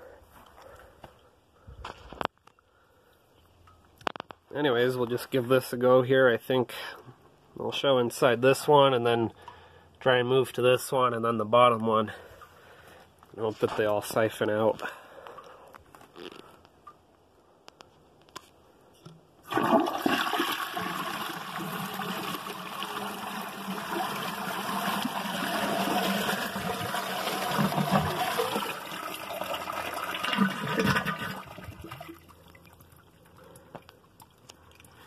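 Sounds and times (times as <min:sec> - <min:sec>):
water rushing through toilets: 0:19.4 - 0:33.0
faint water trickle: 0:31.6 - 0:35.0.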